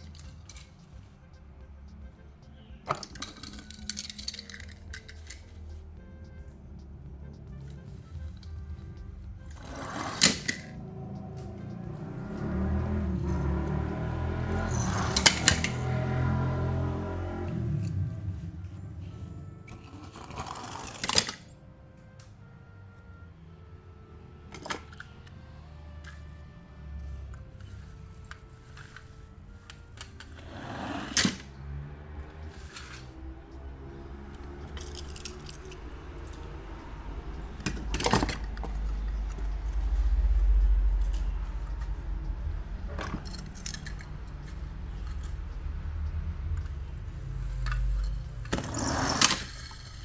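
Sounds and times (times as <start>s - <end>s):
metal toy cars clinking: 0.0s - 0.9s, 2.8s - 5.8s, 9.5s - 10.8s, 14.7s - 15.9s, 19.6s - 21.5s, 27.6s - 29.1s, 32.5s - 33.2s, 34.4s - 36.4s, 37.6s - 39.4s, 42.9s - 45.4s, 47.5s - 50.0s
toy cars rattling in cardboard box: 48.5s - 50.0s.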